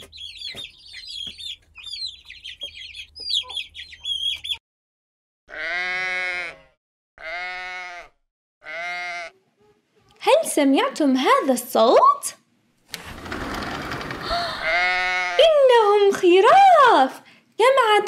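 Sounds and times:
baby chicks peeping: 0.0 - 4.6
sheep bleating: 5.5 - 9.4, 14.6 - 15.5.

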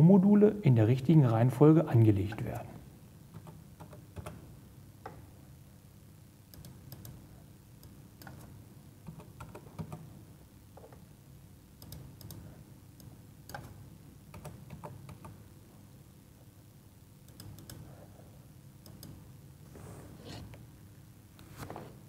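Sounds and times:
low room hum: 0.0 - 22.0
keyboard typing clicks: 3.3 - 4.4, 6.5 - 7.2, 7.8 - 10.1, 11.8 - 15.4, 17.3 - 17.8.

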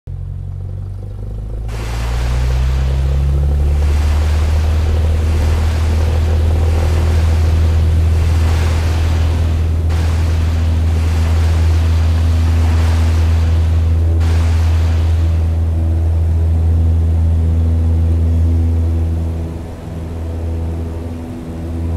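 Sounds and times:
plane engine drone: 0.1 - 21.9
water spray rushing hiss: 1.7 - 15.7
wind on microphone: 1.7 - 21.9.

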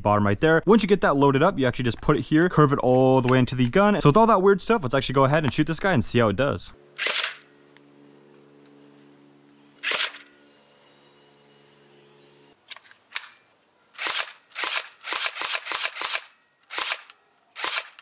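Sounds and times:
airsoft pistol firing: 14.0 - 18.0.

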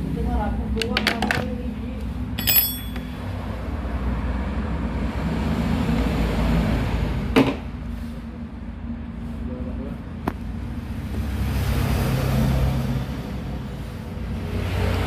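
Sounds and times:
metal tool clinking on housing: 2.4 - 3.4.

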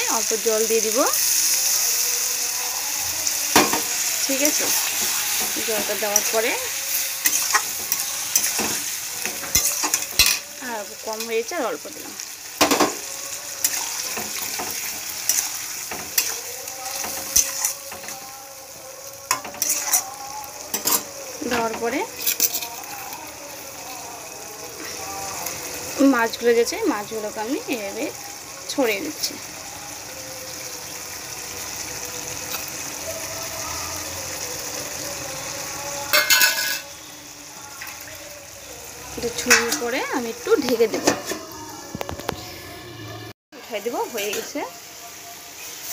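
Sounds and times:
food sizzling: 0.0 - 45.9
spoon stirring and scraping pan: 3.5 - 18.4, 19.3 - 24.0, 39.4 - 42.7
spoon clinking against pan: 7.2 - 10.5, 19.3 - 22.8, 36.1 - 36.9, 39.5 - 40.0.

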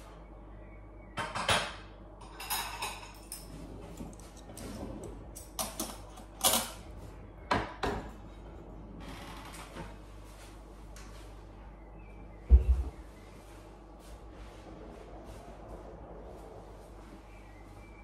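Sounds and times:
kitchenware clattering: 1.2 - 6.9.

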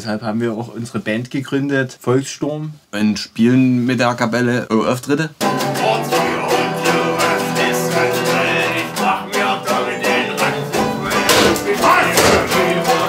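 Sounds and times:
mandolin and lute strumming: 5.4 - 13.0
sharp strikes: 5.4 - 13.0.

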